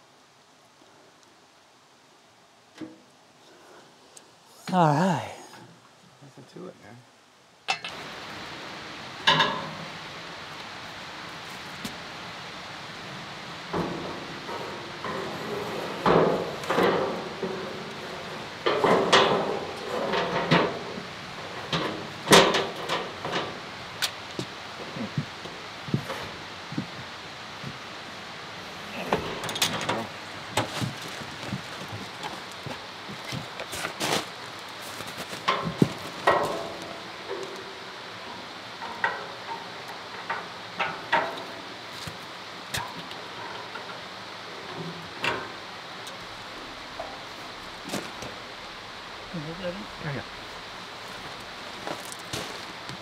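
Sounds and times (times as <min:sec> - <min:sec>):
steady hiss: 0:00.0 - 0:53.0
metal guard clunking and knocking: 0:07.7 - 0:08.0, 0:09.2 - 0:09.9, 0:13.7 - 0:23.7, 0:29.0 - 0:32.5, 0:35.4 - 0:41.7, 0:42.8 - 0:45.6.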